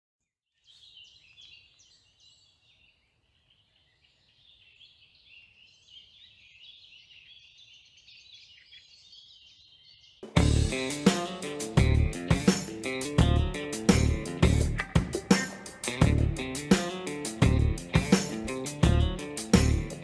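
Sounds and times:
faint birdsong: 0.2s - 12.0s.

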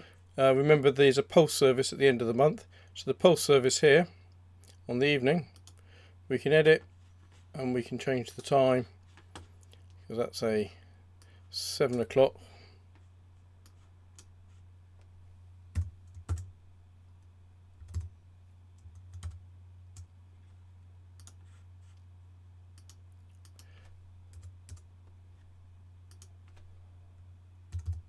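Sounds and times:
keyboard key presses: 27.7s - 28.0s.

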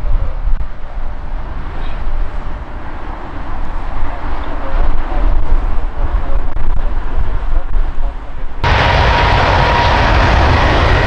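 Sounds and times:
jet engines rumbling: 0.0s - 11.0s
wind on microphone: 0.0s - 11.0s.

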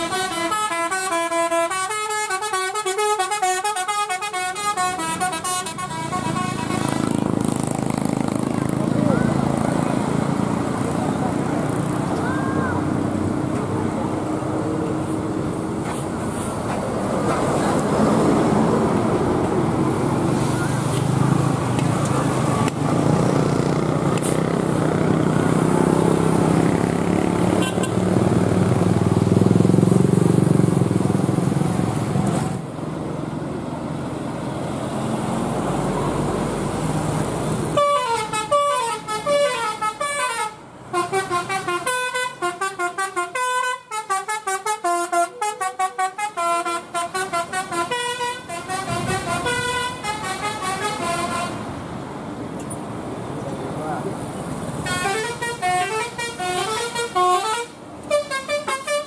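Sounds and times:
multi-tone bus horn tune: 0.0s - 7.2s, 27.5s - 28.1s, 37.7s - 51.8s, 54.8s - 59.0s
vehicle rumble: 3.8s - 59.0s.

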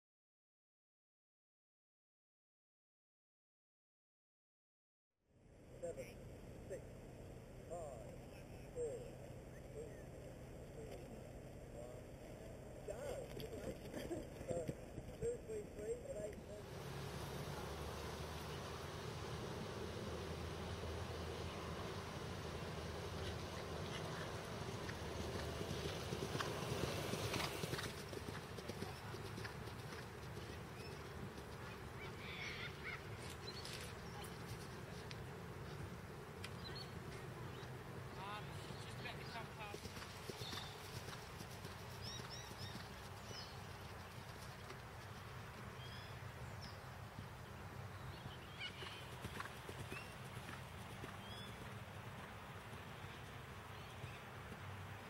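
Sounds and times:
low outdoor rumble: 5.4s - 55.0s
horse galloping on turf: 12.2s - 37.2s, 37.9s - 46.2s, 47.0s - 55.0s
galloping horse hoofbeats on turf: 23.0s - 32.0s, 39.0s - 46.1s.

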